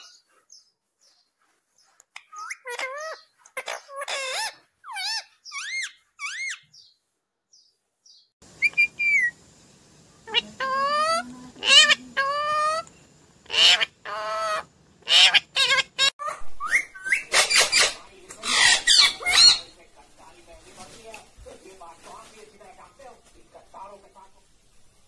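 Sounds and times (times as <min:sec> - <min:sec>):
parakeet chirps and whistles: 0:02.2 - 0:06.9, 0:08.6 - 0:09.4, 0:13.6 - 0:19.7
parakeet squawking: 0:02.2 - 0:06.9, 0:08.6 - 0:09.4, 0:10.3 - 0:12.9, 0:13.5 - 0:19.8.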